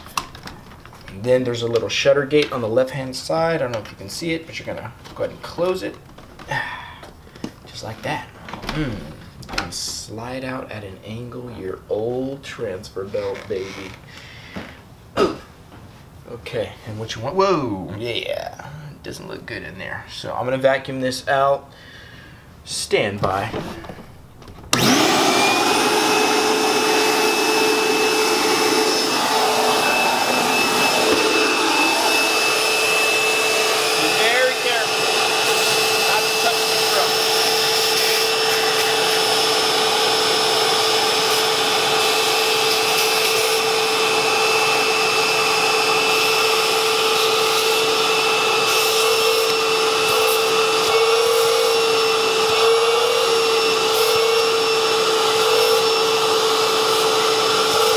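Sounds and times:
vacuum cleaner whining: 23.2s - 57.9s.

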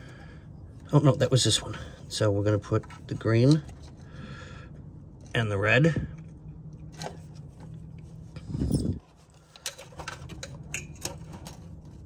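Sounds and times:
hands handling wiring and connectors: 2.4s - 4.1s, 6.1s - 12.0s.

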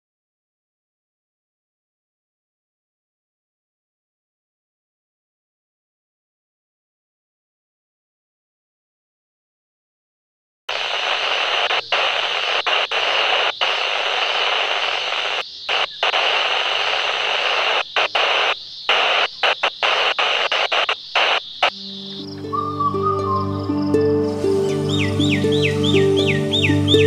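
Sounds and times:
radio static hiss: 10.7s - 22.4s.

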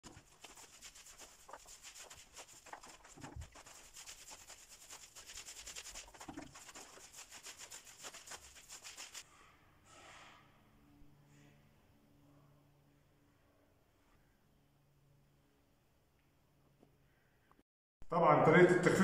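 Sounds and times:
paint roller rasping on wall: 0.0s - 9.3s.

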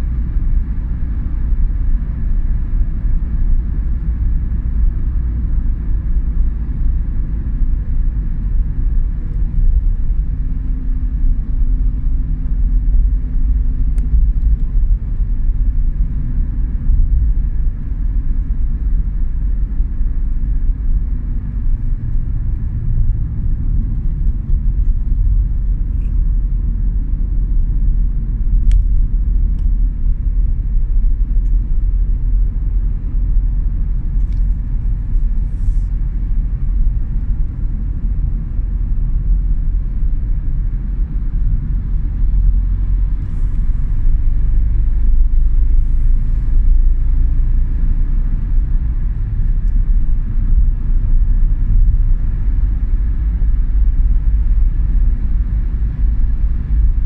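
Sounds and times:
car road and engine rumble: 0.0s - 57.0s.

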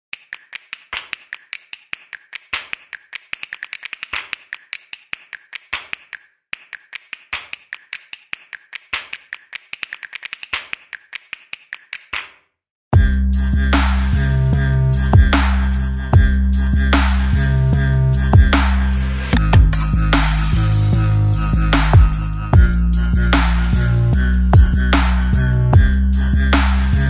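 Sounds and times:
rapid sharp clicks: 0.1s - 12.3s.

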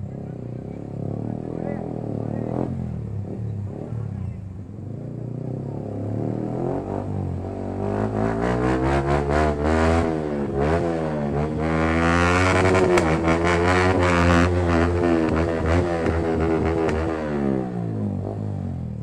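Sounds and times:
motorcycle engine revving: 0.0s - 19.0s
exhaust pops: 12.5s - 17.1s.

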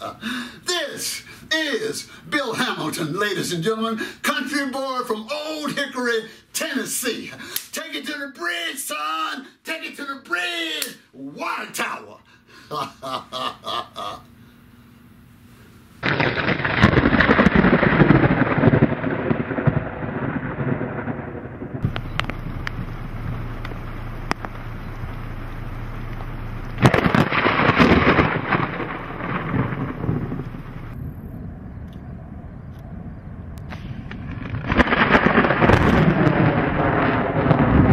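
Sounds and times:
low hum with crackles: 10.0s - 37.9s
thunder crashes: 16.0s - 37.9s.

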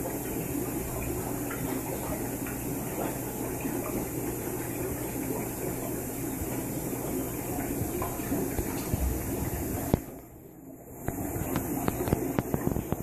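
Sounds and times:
bubbles popping at water surface: 0.0s - 10.3s
aquarium filter bubbling: 0.0s - 13.0s
low steady hum: 0.0s - 13.0s.

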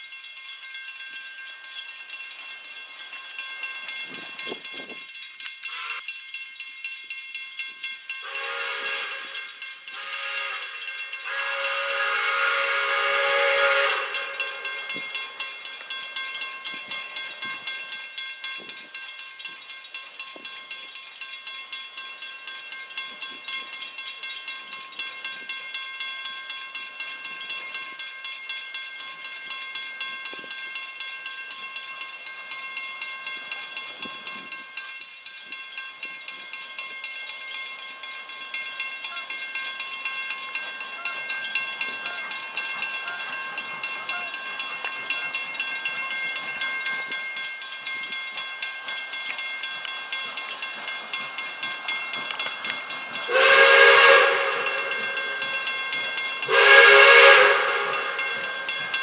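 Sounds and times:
crossing bell ringing: 0.0s - 59.0s
steam whistle blasts: 5.7s - 6.0s, 8.2s - 14.9s, 53.3s - 55.6s, 56.5s - 58.7s.

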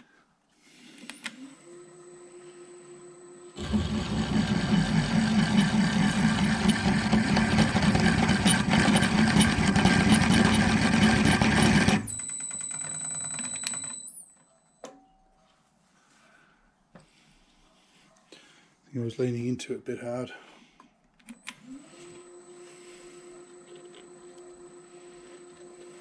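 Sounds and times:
thin high motor whine: 1.2s - 12.3s, 21.4s - 26.0s
drill press grinding through metal: 3.6s - 12.2s.

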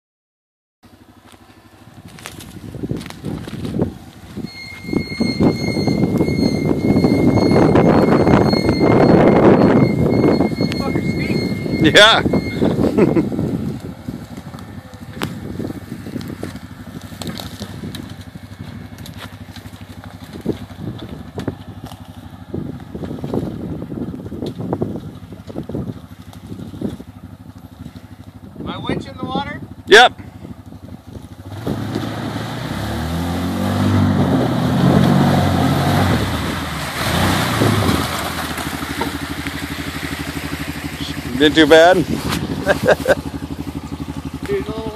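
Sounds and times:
engine pulling hard: 0.9s - 44.9s
water splashing and rushing: 31.5s - 44.9s
single-cylinder engine running slowly: 38.8s - 44.9s.

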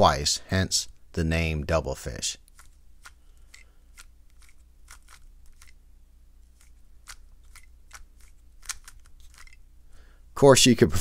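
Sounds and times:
speed cube clicking: 2.4s - 5.8s, 6.5s - 9.6s.

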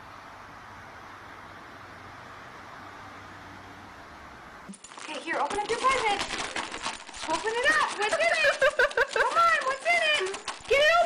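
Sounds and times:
steady background hiss: 0.0s - 4.9s.

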